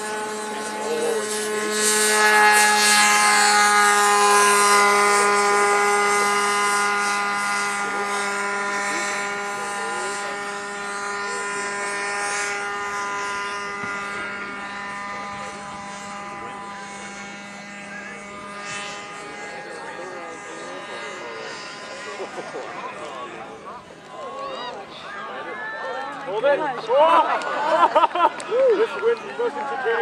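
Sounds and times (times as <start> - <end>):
model airplane engine passing: 0.0 - 30.0.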